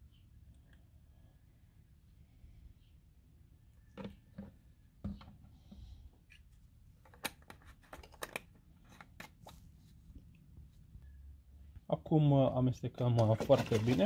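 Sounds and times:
plastic bottle taps: 4.0s - 5.4s.

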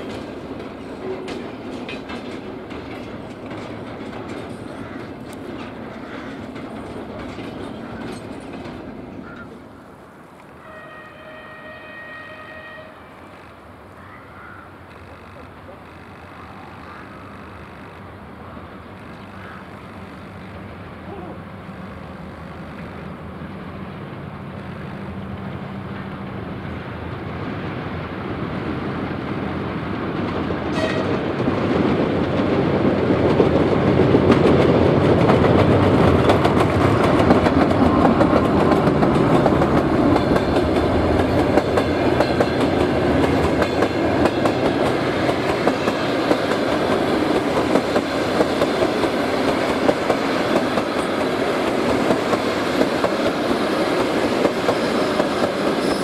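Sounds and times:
train wheels clickety-clack: 0.0s - 9.6s, 30.1s - 56.0s
diesel locomotive engine humming: 0.0s - 56.0s.

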